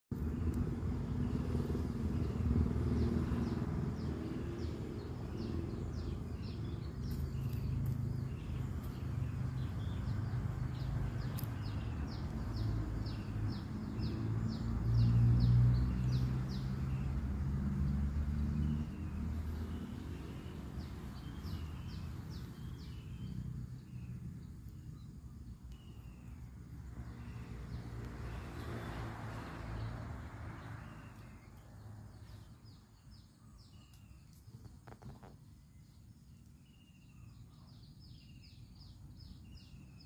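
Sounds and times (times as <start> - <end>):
bird chirping: 0.2 - 40.0.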